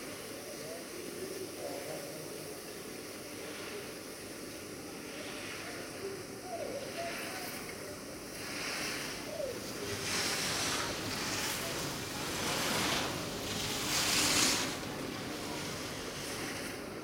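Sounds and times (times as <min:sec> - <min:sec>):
skis scraping on snow: 0:03.0 - 0:06.0, 0:08.3 - 0:17.0.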